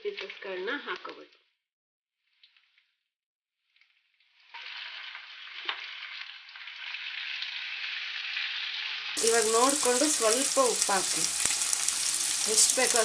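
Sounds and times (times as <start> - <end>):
food sizzling in hot oil: 3.8 - 13.0.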